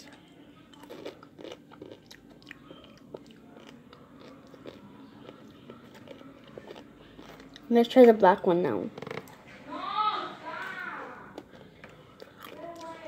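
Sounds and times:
person chewing crunchy candy: 0.7s - 7.7s, 11.4s - 13.0s.

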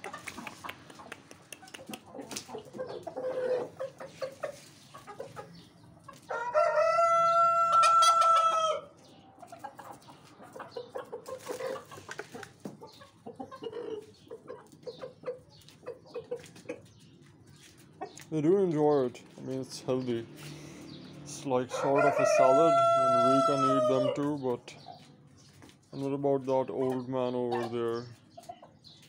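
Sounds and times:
chickens clucking: 0.0s - 29.0s
rooster crowing: 6.3s - 8.9s, 21.7s - 24.1s.

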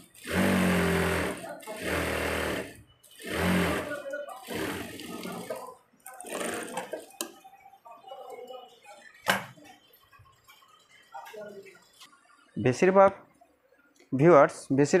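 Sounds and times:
sewing machine stitching: 0.0s - 7.2s.

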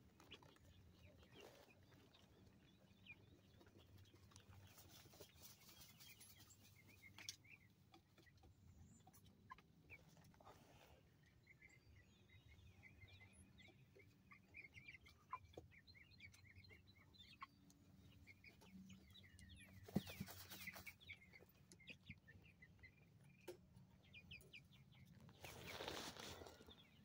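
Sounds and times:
chicks chirping and trilling: 0.0s - 27.0s
scratchy rustle: 25.3s - 26.7s.

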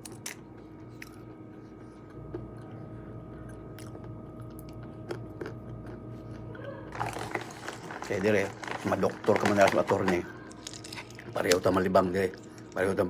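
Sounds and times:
person chewing food: 0.0s - 8.1s
faint steady hum: 0.0s - 13.0s.

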